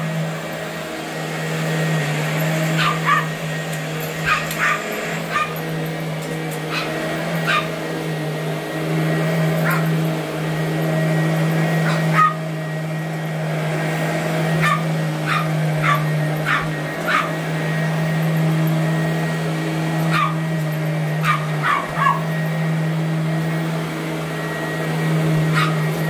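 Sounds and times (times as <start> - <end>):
vacuum cleaner humming: 0.0 - 26.0
small dog yapping: 2.8 - 3.4, 4.2 - 5.6, 6.7 - 7.8, 9.6 - 9.9, 11.8 - 12.4, 14.6 - 17.4, 20.1 - 20.4, 21.2 - 22.3, 25.5 - 25.8.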